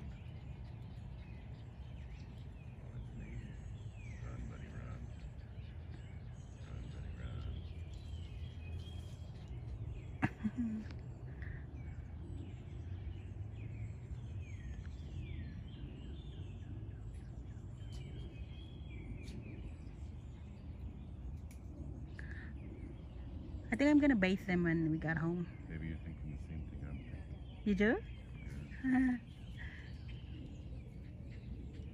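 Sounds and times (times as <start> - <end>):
birds chirping: 0.0 - 31.9
low outdoor rumble: 0.0 - 31.9.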